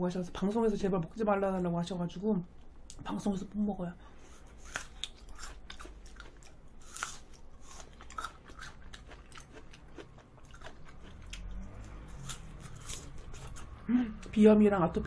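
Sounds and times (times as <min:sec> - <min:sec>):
chewing and biting cake: 0:04.3 - 0:13.8
mouth sounds: 0:13.8 - 0:14.3.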